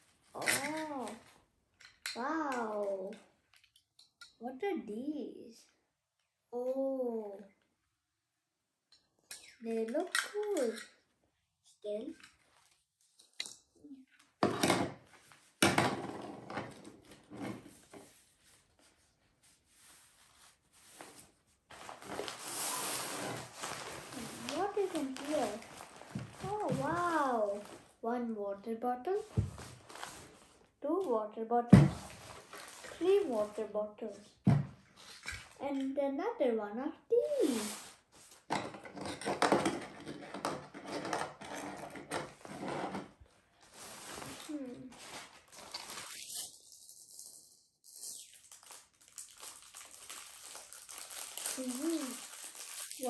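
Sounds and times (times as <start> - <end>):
fabric bags rustling: 19.6 - 28.0, 43.6 - 47.2, 48.4 - 53.0
cloth bag rustling: 19.7 - 27.9.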